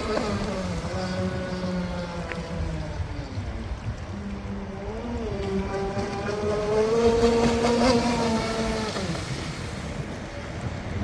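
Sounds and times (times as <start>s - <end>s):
speedboat motor whine: 0.0s - 11.0s.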